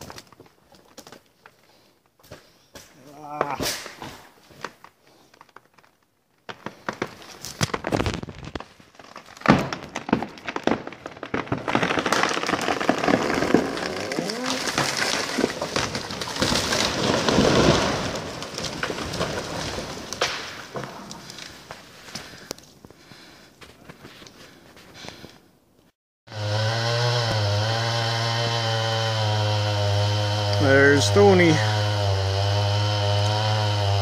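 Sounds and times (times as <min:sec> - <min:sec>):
wood cracking and snapping: 0:00.0 - 0:23.1
tree crashing through timber: 0:05.6 - 0:21.7, 0:26.4 - 0:34.0.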